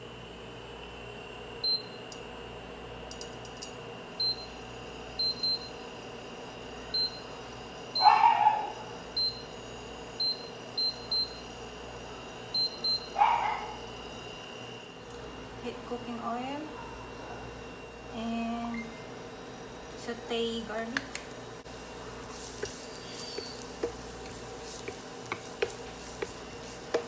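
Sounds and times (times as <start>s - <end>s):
cooktop control panel beeping: 4.2s - 6.0s, 6.8s - 7.4s, 9.0s - 11.6s, 12.5s - 13.6s, 22.3s - 27.0s.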